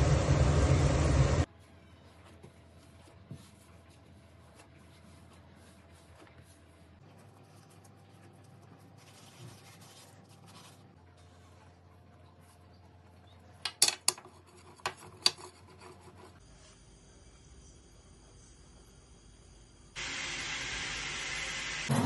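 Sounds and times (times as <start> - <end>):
hands rubbing dough: 1.5 - 13.3.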